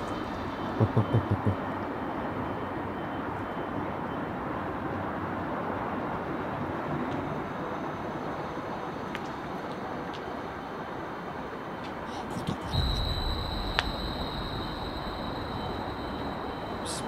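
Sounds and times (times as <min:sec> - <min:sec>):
steady outdoor rushing noise: 0:00.0 - 0:17.0.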